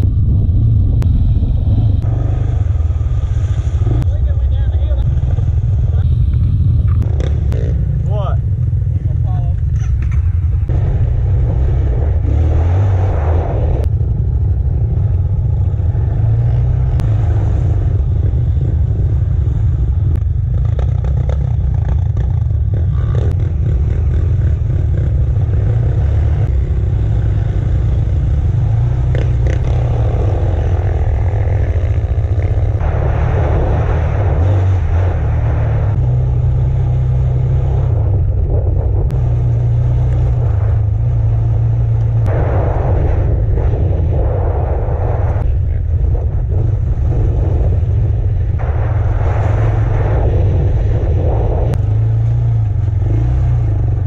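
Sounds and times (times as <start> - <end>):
quad engine revving: 20.2 - 54.0.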